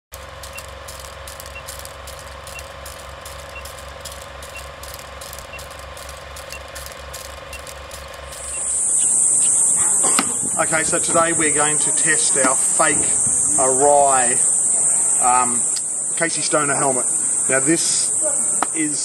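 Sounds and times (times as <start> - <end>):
film projector clattering: 0.1 - 13.9
faint ticking: 0.1 - 18.9
high-pitched hiss: 0.1 - 19.0
steady hum: 0.1 - 19.0.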